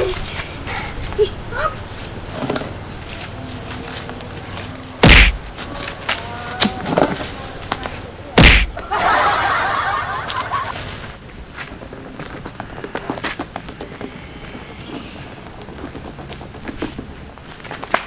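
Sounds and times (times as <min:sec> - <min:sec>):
tyre thudding onto road: 0:05.0 - 0:05.7, 0:08.4 - 0:08.8.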